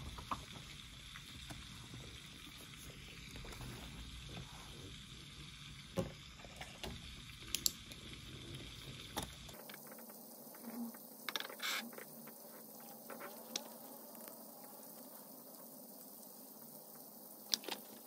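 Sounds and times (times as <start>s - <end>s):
faint rain hiss: 0.0s - 18.0s.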